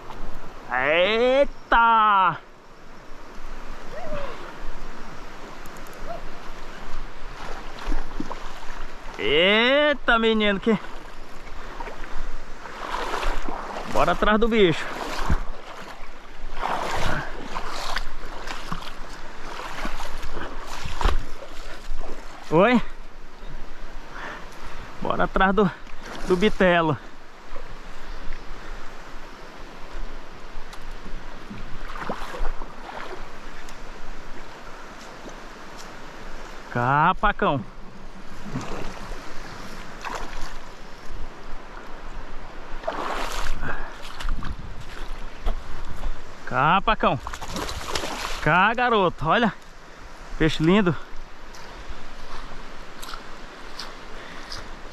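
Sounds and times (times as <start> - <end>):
river current rushing: 0.0 - 54.9
water splashing around wading legs: 5.4 - 9.2, 10.5 - 22.7, 30.6 - 36.0, 38.2 - 42.0, 42.6 - 46.3, 47.0 - 48.8.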